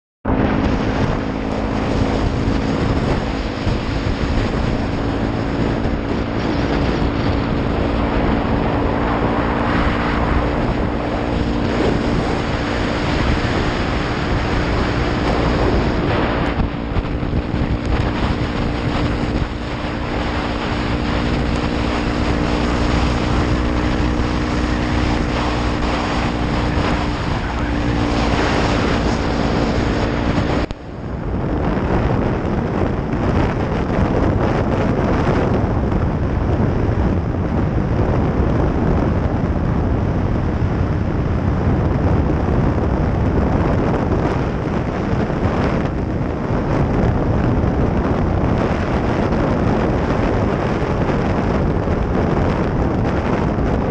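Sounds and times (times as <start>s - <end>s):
motorcycle engine cruising: 0.2s - 53.9s
wind on microphone: 0.2s - 53.9s.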